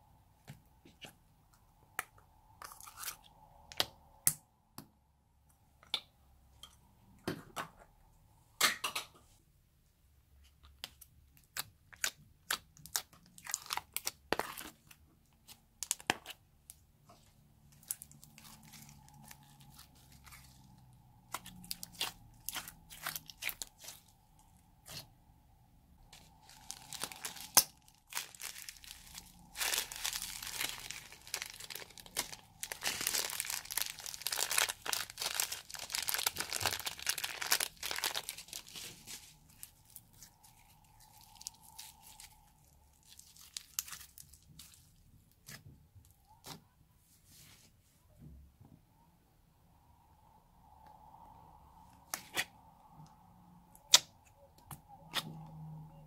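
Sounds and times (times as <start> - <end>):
slime squishing with sticky pops: 10.7 - 25.1
crackling and crunching beads: 10.9 - 25.2, 26.0 - 46.4.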